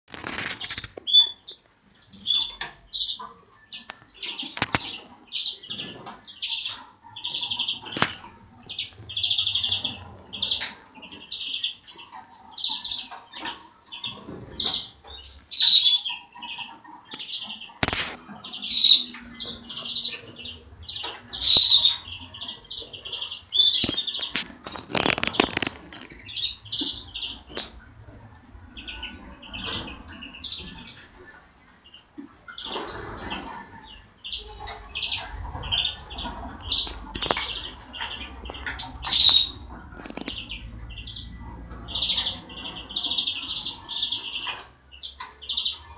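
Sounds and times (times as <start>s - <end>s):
wing flutter rustle: 0.1s - 1.1s, 23.8s - 26.3s
finches singing: 31.9s - 45.9s.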